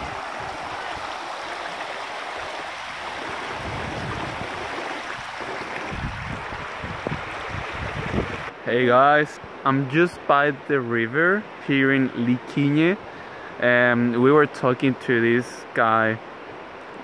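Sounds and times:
river rushing over stones: 0.0s - 10.9s.

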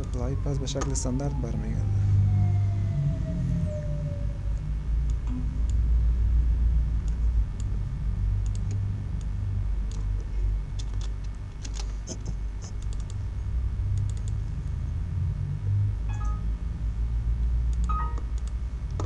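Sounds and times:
low hum: 0.0s - 19.0s
computer keys and mouse clicking: 8.4s - 9.3s, 9.9s - 10.1s, 10.7s - 13.2s, 13.9s - 14.5s, 17.7s - 19.0s.

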